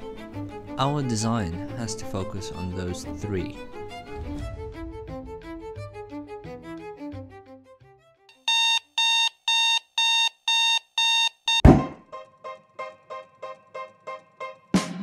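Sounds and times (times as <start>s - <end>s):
digital alarm clock beeping: 8.3s - 11.8s.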